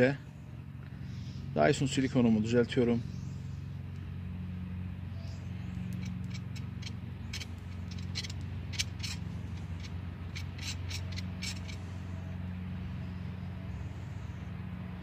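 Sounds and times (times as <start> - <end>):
steady low hum: 0.0 - 15.0
screwdriver clicking and scraping metal: 5.9 - 11.8.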